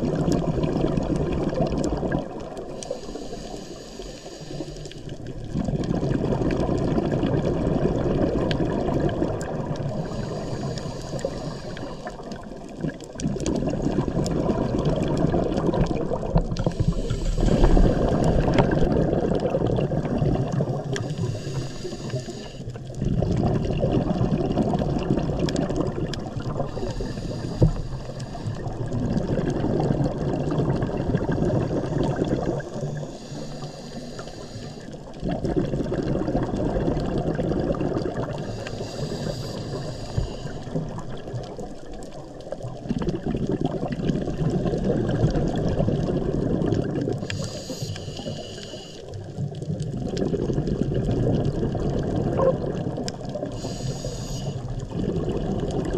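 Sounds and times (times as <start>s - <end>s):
bubbling exhale: 0.0s - 55.9s
hissing regulator inhales: 2.8s - 5.1s, 9.9s - 12.4s, 16.6s - 18.6s, 20.9s - 22.8s, 26.6s - 28.8s, 31.8s - 35.1s, 38.4s - 40.8s, 47.2s - 49.2s, 53.5s - 54.8s.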